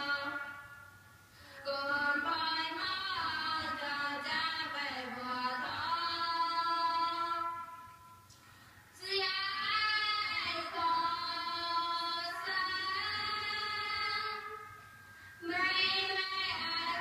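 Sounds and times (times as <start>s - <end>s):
high voice singing: 0.0s - 0.9s.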